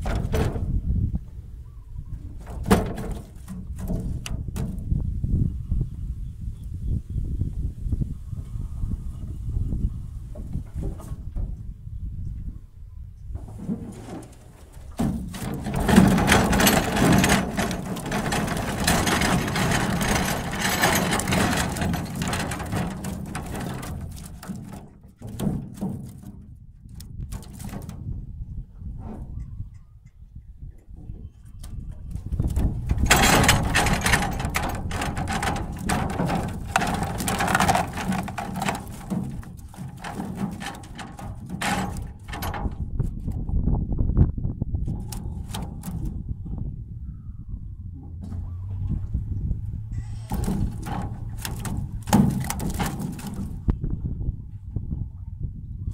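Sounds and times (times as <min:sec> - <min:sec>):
fish thrashing on metal floor: 0:00.0 - 0:00.7, 0:02.4 - 0:04.8, 0:13.4 - 0:28.1, 0:32.1 - 0:43.3, 0:44.8 - 0:46.2, 0:50.2 - 0:53.8
net rustling and knocking: 0:13.4 - 0:28.1, 0:32.4 - 0:43.3, 0:50.3 - 0:53.8.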